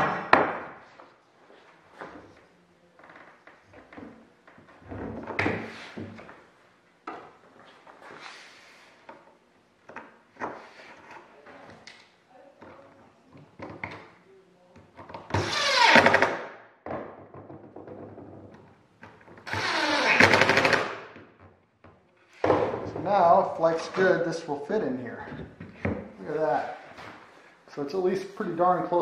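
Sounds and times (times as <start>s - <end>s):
wooden blocks knocking on workbench: 0.0s - 0.8s.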